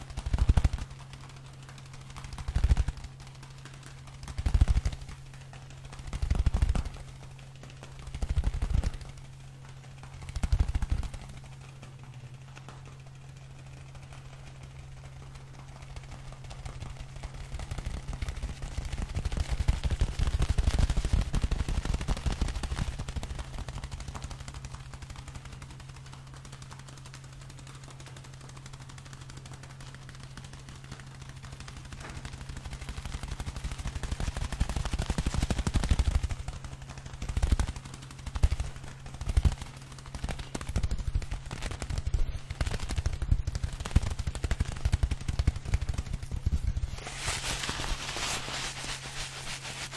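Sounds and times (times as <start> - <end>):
fingers rubbing on microphone: 37.3 - 49.9.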